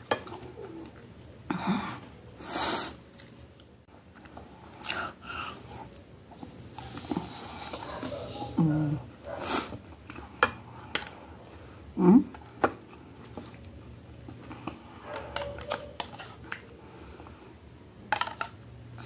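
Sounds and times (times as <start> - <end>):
chewing and mouth noises: 2.9 - 8.2, 12.3 - 16.8.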